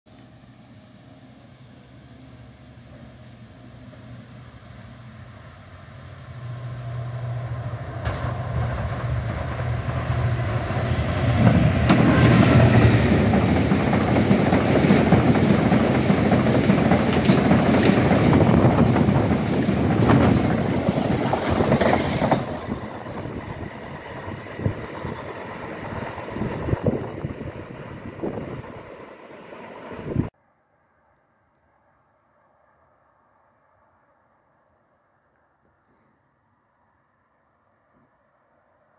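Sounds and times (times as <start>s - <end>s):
diesel locomotive engine drone: 0.1s - 30.4s
freight wagons rumbling by: 6.4s - 28.6s.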